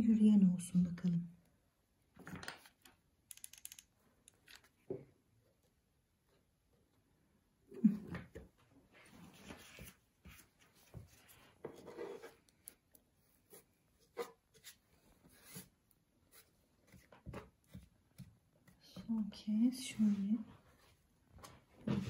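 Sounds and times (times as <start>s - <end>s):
light rubbing and scraping: 9.0s - 12.7s.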